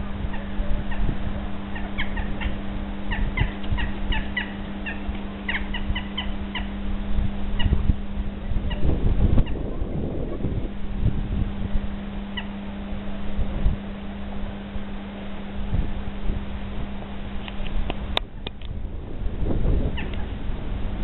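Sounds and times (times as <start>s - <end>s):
jackdaws calling: 0.0s - 6.8s, 11.9s - 15.3s, 19.9s - 20.4s
low hum and rumble: 0.0s - 21.0s.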